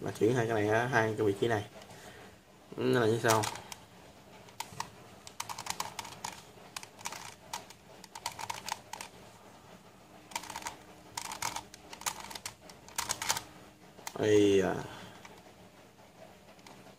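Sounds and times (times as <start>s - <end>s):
plastic puzzle clicking: 3.2s - 3.8s, 4.5s - 9.1s, 10.3s - 13.5s.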